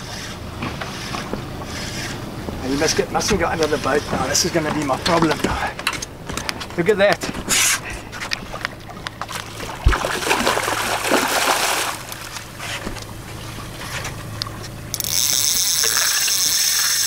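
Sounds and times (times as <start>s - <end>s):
fish thrashing and water splashing: 7.8s - 17.0s.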